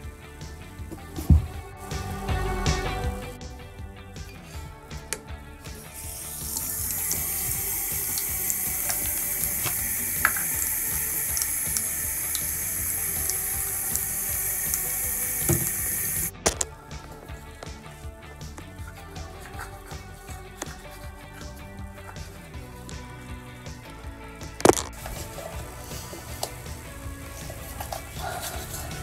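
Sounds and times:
faucet water running into sink: 6.0 - 16.3.

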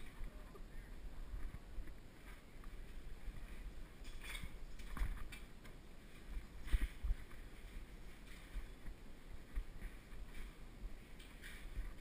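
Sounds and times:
bicycle clicks and rattles: 4.0 - 5.6.

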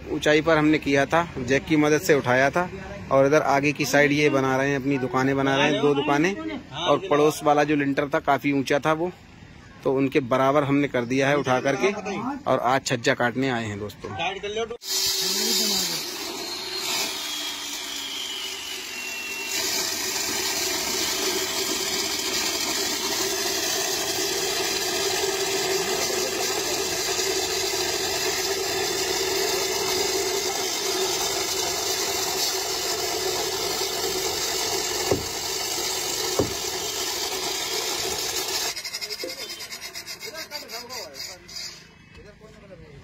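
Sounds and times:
concrete cutter whining and grinding: 14.8 - 41.7.

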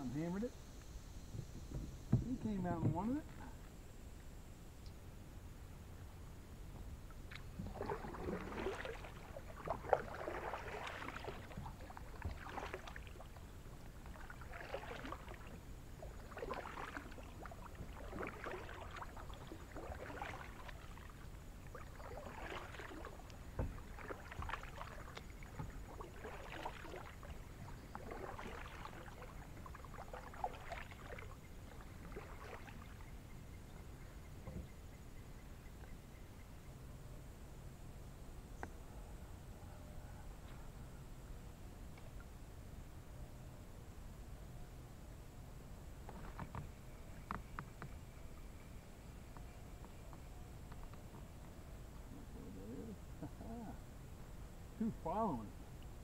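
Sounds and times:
light paddle knock: 1.3 - 3.7
paddle splashing through water: 7.0 - 33.1.

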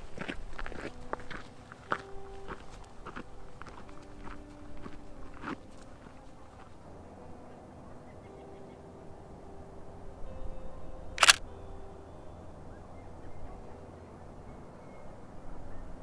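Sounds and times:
faint outdoor background: 0.0 - 16.0
camera shutter click: 11.2 - 11.4.

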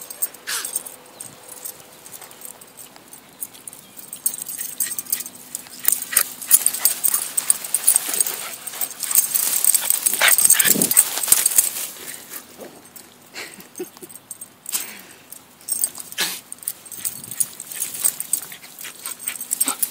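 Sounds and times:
jingling: 0.0 - 19.9
dog moving in long grass: 1.5 - 13.0.

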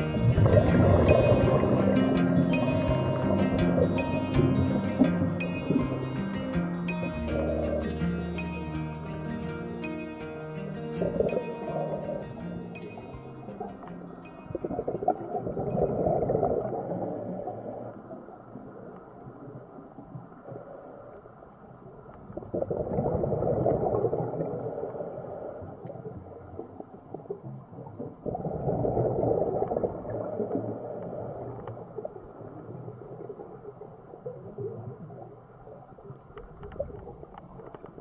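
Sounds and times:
exhaled bubbles rumbling underwater: 0.0 - 8.4, 10.9 - 38.0
faint hiss of air: 16.7 - 18.2, 24.5 - 25.9.

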